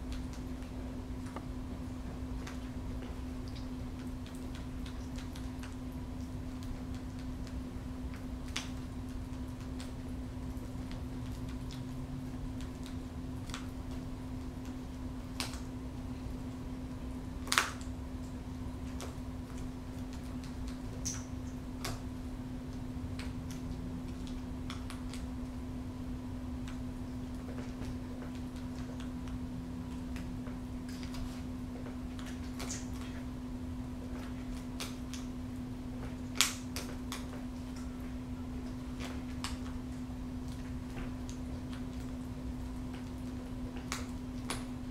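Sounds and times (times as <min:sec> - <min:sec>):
steady low hum: 0:00.0 - 0:44.9
beak tearing meat clicks: 0:02.4 - 0:10.0, 0:10.6 - 0:15.8, 0:17.4 - 0:18.0, 0:18.8 - 0:22.1, 0:22.7 - 0:25.4, 0:27.4 - 0:33.3, 0:34.1 - 0:35.4, 0:36.0 - 0:37.9, 0:39.0 - 0:42.2, 0:42.8 - 0:44.7
sharp snap: 0:36.3 - 0:37.3.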